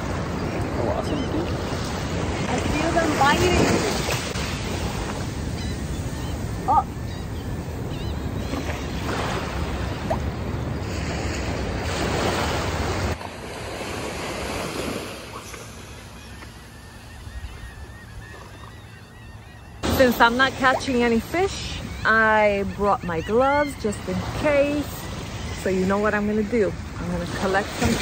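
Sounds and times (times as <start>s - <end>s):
small waves washing on sand: 0.0s - 5.6s, 8.6s - 16.0s.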